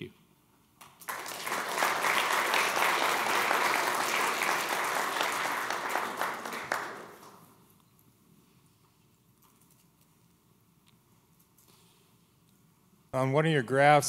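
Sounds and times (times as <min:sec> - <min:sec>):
audience applauding: 0:00.8 - 0:07.5.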